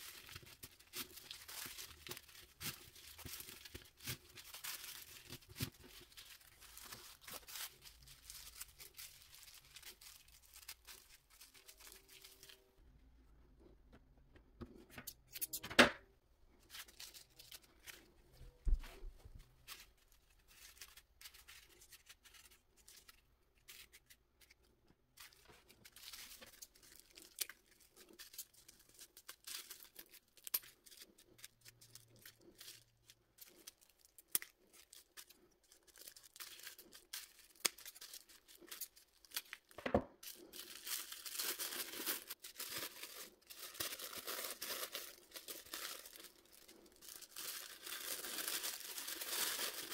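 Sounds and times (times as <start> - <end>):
tissue paper rustling: 0.0 - 12.6, 25.2 - 34.1, 34.7 - 49.9.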